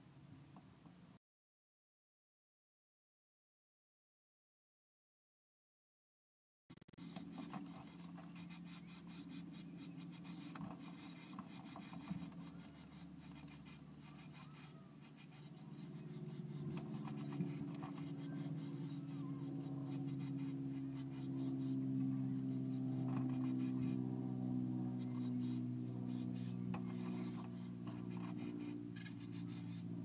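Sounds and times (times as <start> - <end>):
steady low hum: 6.8 - 30.0
birds scratching inside nest box: 6.9 - 24.2, 24.8 - 30.0.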